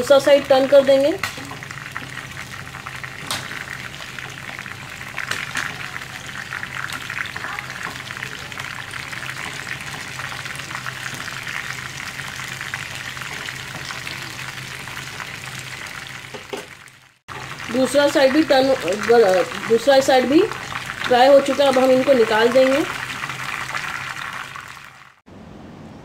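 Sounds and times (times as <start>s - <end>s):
chicken deep-frying in oil: 0.0s - 25.2s.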